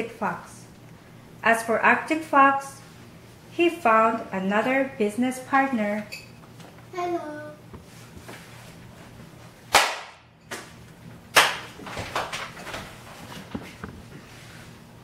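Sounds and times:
rustling and shuffling: 0:07.7 - 0:09.6, 0:11.8 - 0:15.0
sharp smacks: 0:09.7 - 0:10.7, 0:11.3 - 0:11.7.

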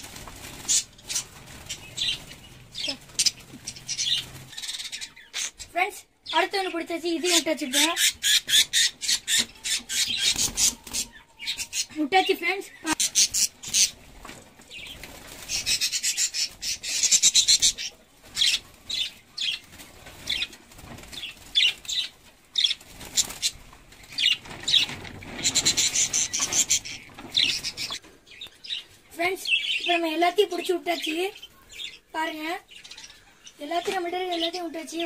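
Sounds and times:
birds flapping wings: 0:00.0 - 0:05.6, 0:09.3 - 0:11.8, 0:13.2 - 0:28.1
birds chirping sharply: 0:00.0 - 0:35.0.

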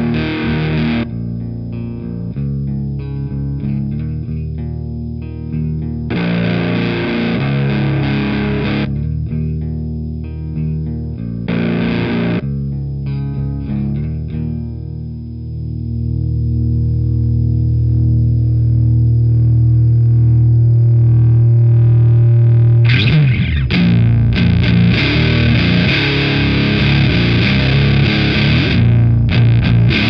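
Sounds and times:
distorted electric guitar riff: 0:00.0 - 0:30.0.

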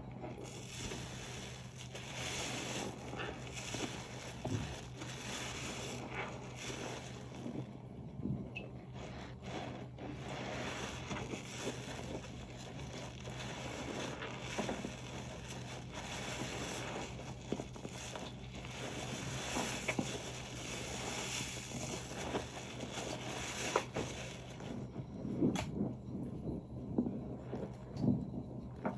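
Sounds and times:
soapy sponge squelching: 0:00.2 - 0:07.8, 0:08.9 - 0:24.6.

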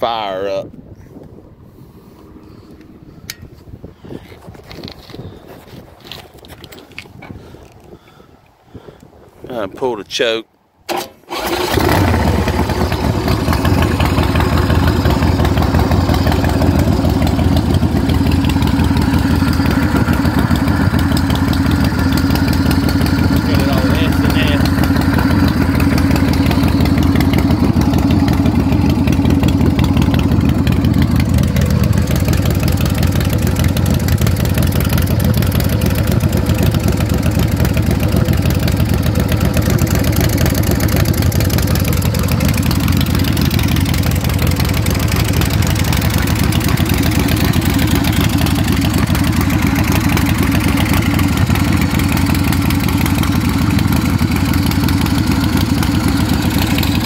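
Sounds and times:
motorcycle engine idling: 0:11.3 - 0:57.0.

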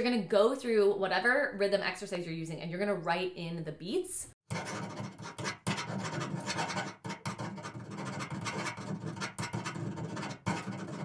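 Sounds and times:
stylus scratching on tablet screen: 0:04.5 - 0:11.0.

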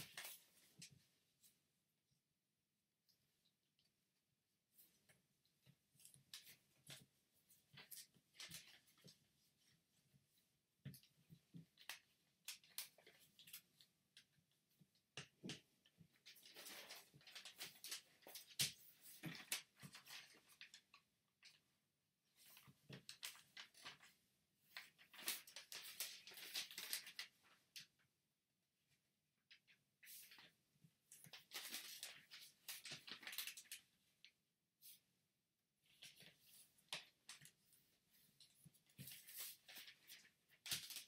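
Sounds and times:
paper taps and crinkles: 0:00.0 - 0:01.0, 0:05.0 - 0:09.3, 0:10.8 - 0:21.6, 0:22.4 - 0:28.0, 0:29.5 - 0:35.0, 0:35.9 - 0:41.0.

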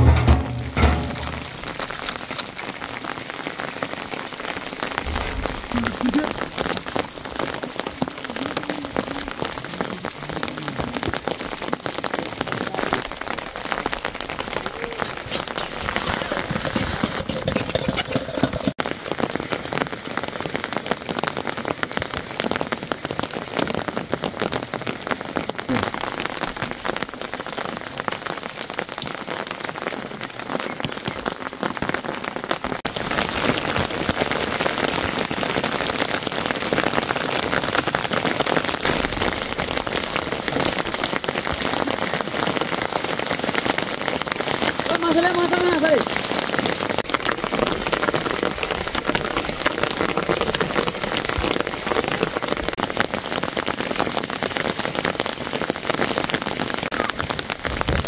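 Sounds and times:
rain pattering: 0:00.0 - 0:58.0.

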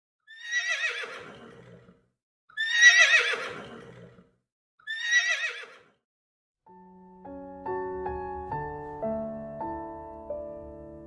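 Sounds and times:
horse neighing: 0:00.3 - 0:02.0, 0:02.6 - 0:06.0.

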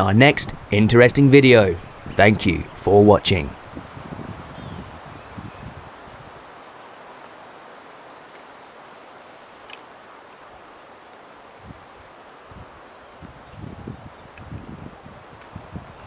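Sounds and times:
wind gusts on microphone: 0:00.0 - 0:06.6, 0:11.6 - 0:16.0
insect chorus: 0:00.0 - 0:16.0.

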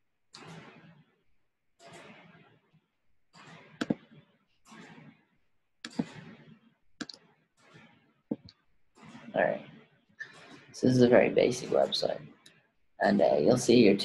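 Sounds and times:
computer mouse clicks: 0:05.9 - 0:06.1, 0:07.0 - 0:07.2.

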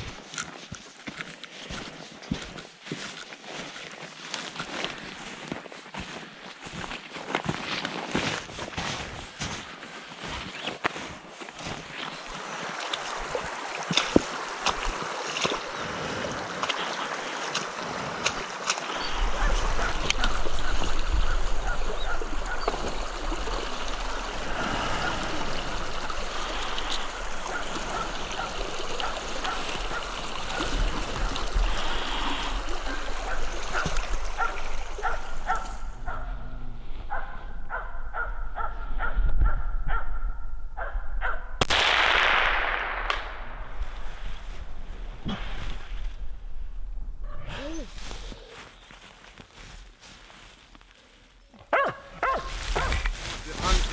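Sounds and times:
footsteps splashing through stream: 0:00.0 - 0:36.2, 0:41.9 - 0:47.0, 0:47.8 - 0:53.9
rushing water: 0:00.0 - 0:37.3.

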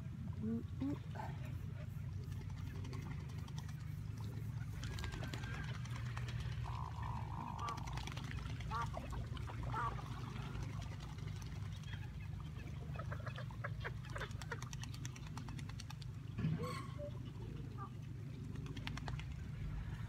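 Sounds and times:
waterfowl calling: 0:04.6 - 0:11.0
steady low rumble: 0:15.0 - 0:20.0.

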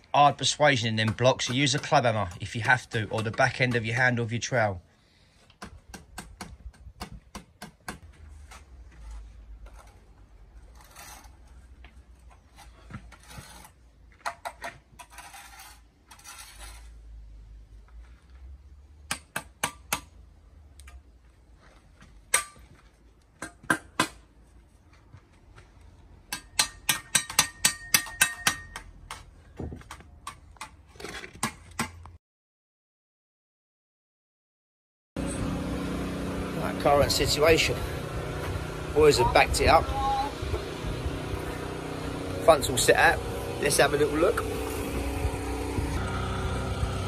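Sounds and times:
trowel scraping wet mortar: 0:00.2 - 0:04.8, 0:08.0 - 0:17.3.

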